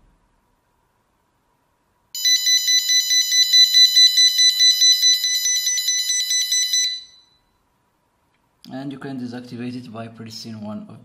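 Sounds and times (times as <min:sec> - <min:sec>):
alarm buzzer beeping rapidly: 0:02.2 - 0:07.4.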